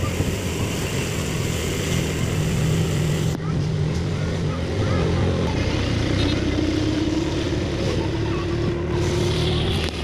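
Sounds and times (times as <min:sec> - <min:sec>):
auto-rickshaw engine droning: 0:00.0 - 0:10.0
rising engine whine: 0:04.9 - 0:10.0.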